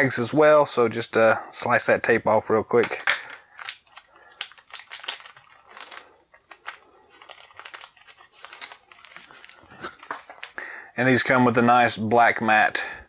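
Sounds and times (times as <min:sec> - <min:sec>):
plastic bag crinkling: 0:03.4 - 0:10.6.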